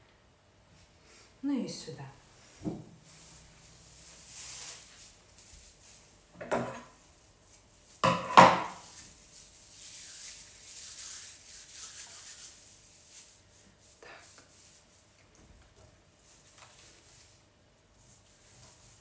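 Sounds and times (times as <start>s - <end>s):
objects rustling on tabletop: 2.4s - 19.0s
objects clattering: 6.4s - 7.0s.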